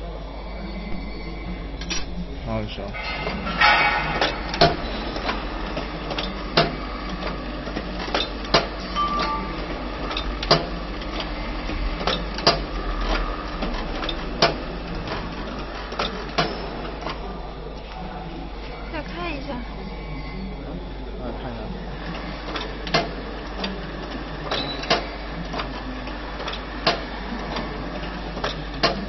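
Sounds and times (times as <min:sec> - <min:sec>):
machine steady hum: 0:00.0 - 0:29.0
machine mechanism clacking: 0:02.8 - 0:15.3.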